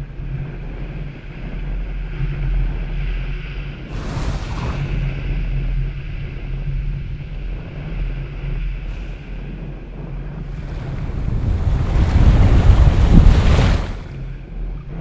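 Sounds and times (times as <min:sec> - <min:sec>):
wind buffeting microphone: 0:00.0 - 0:15.0
surf washing over sand: 0:03.8 - 0:05.5, 0:10.4 - 0:14.4
wave rush: 0:03.8 - 0:05.6, 0:10.5 - 0:14.3.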